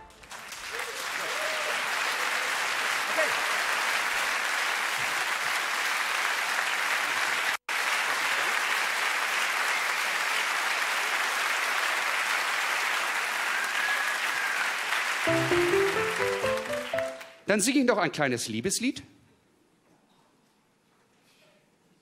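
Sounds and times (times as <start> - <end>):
audience applauding: 0.0 - 17.5
instrument notes: 15.3 - 17.4.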